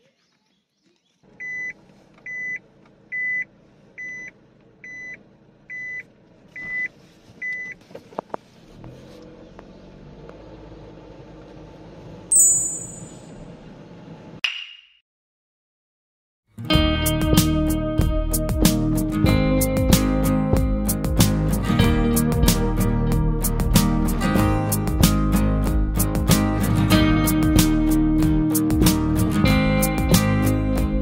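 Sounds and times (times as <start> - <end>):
car engine rumble: 1.3 - 12.3, 13.1 - 14.4
car warning beeps: 1.4 - 7.8
short sharp high-pitched sound: 12.3 - 13.3.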